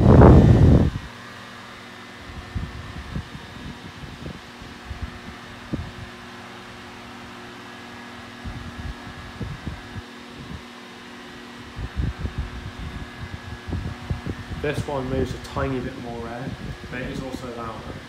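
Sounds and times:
air buffeting: 0.0 - 1.2, 2.1 - 18.0
desk fan motor hum: 0.0 - 18.0.

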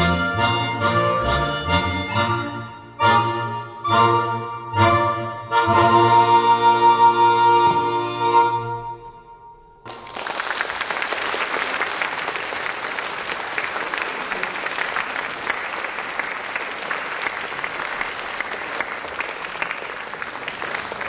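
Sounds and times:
audience applauding: 9.9 - 21.0.

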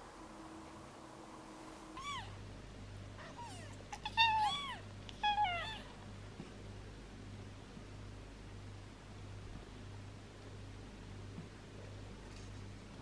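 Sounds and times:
kitten mewing: 2.0 - 2.4, 3.2 - 6.0.

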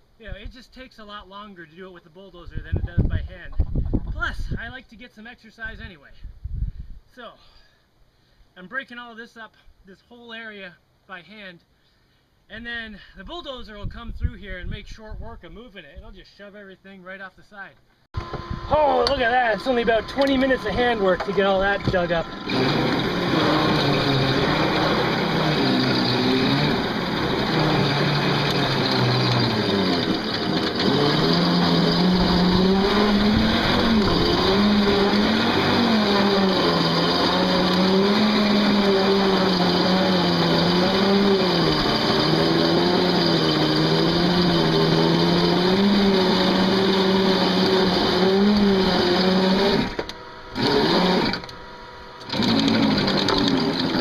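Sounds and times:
electric motor whining under load: 18.2 - 54.0.

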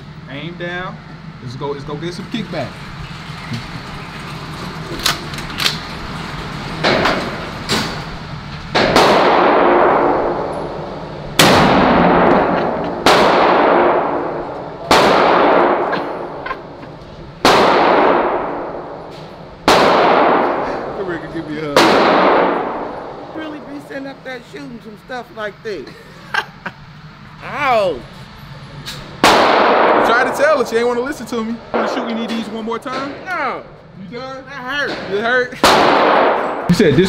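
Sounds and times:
shotgun blasts ringing indoors: 8.7 - 16.7, 17.4 - 21.0, 21.8 - 23.4, 29.2 - 30.6, 31.7 - 33.3, 34.9 - 36.7.

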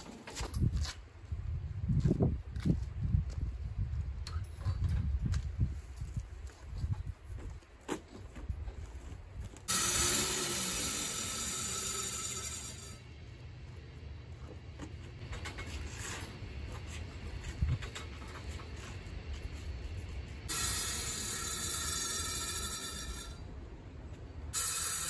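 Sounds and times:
sprayer hissing: 9.7 - 12.5.

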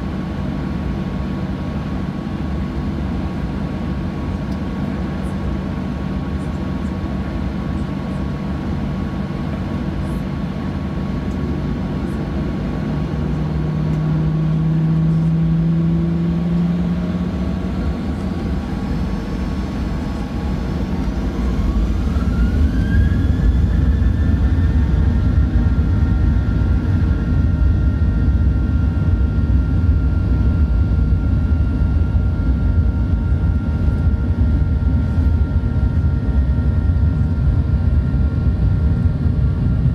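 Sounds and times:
jet engines whining: 0.0 - 39.9
low engine rumble: 0.0 - 39.9.

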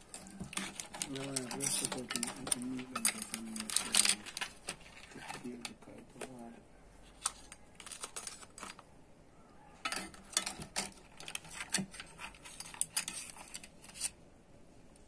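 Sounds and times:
metal spoon scraping a pot: 0.0 - 4.1, 9.8 - 14.1.

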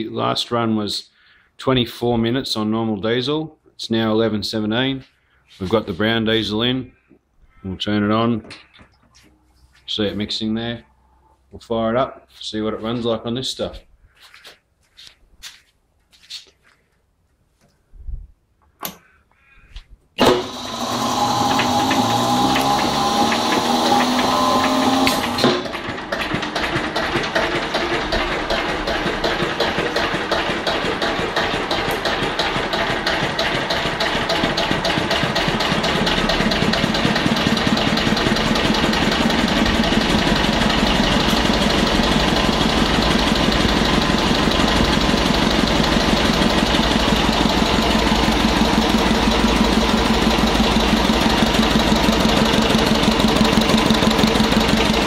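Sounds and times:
diesel engine starting and running: 20.2 - 55.0.

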